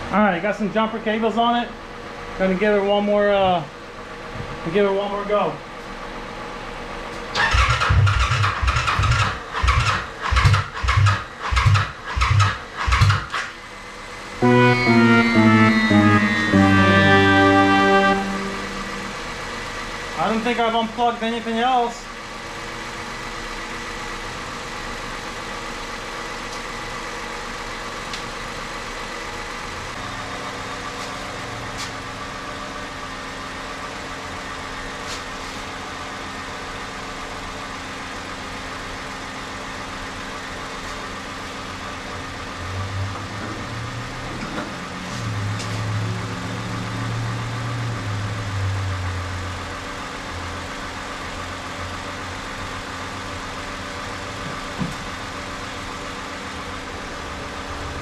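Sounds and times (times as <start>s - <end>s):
deep loud drone: 14.3s - 20.6s
car engine idling: 19.0s - 35.0s.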